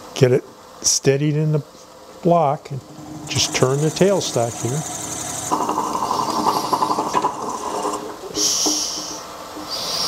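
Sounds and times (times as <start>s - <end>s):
lathe humming with whine: 2.6s - 9.3s
drill bit hissing through wood: 2.9s - 10.0s.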